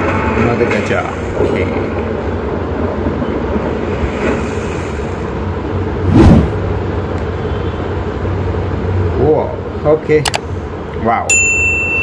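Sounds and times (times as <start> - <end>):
loud whoosh: 4.0 - 6.8.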